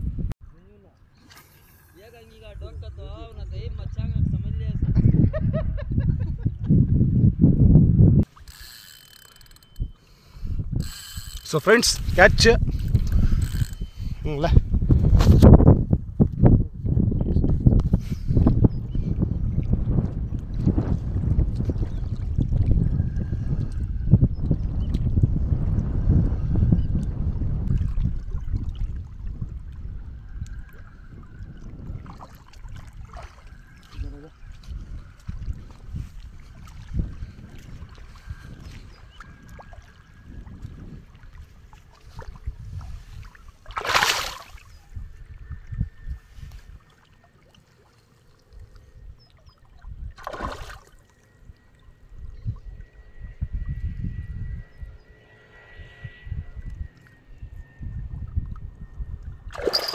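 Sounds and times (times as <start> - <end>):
wind buffeting microphone: 0.0 - 0.4, 2.0 - 8.4, 9.4 - 46.9, 48.6 - 59.9
fish splashing in water: 30.6 - 34.0, 36.4 - 44.8, 50.1 - 51.2, 59.5 - 59.9.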